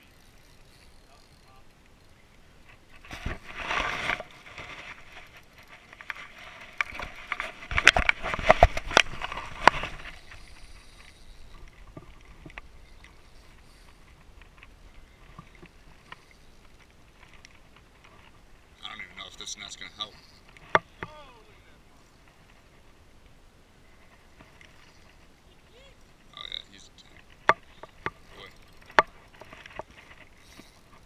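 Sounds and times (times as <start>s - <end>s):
faint ticks: 0.0s - 2.9s, 9.0s - 18.4s.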